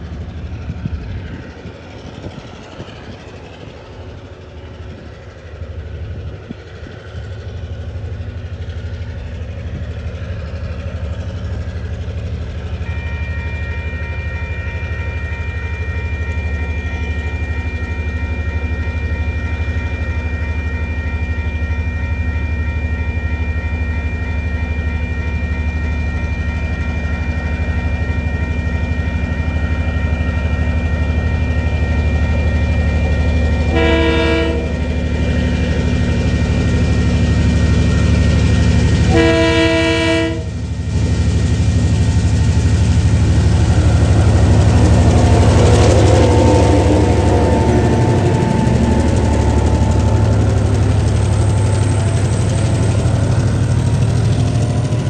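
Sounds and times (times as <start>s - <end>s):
crossing warning tone: 0.0s - 55.0s
diesel locomotive engine rumble: 0.0s - 55.0s
train horn blasts: 12.3s - 26.1s, 27.0s - 41.9s, 43.1s - 52.4s.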